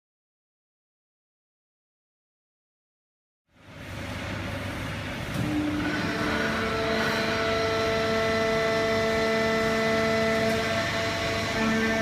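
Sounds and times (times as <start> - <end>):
baler machine hum: 3.5 - 12.0
steady tonal machine whine: 3.5 - 12.0.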